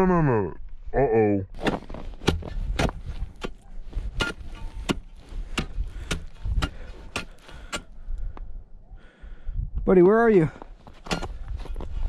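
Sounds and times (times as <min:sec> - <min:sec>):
steel bar chipping ice: 0:01.6 - 0:07.9.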